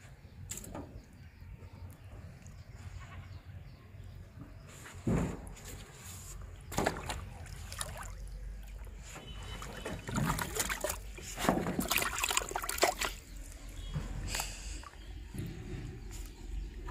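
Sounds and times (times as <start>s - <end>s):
fish splashing in a bucket: 6.6s - 15.4s.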